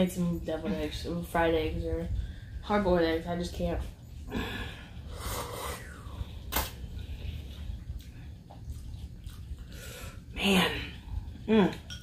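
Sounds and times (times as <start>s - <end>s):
steady low hum: 0.0s - 12.0s
person chewing: 7.4s - 10.2s.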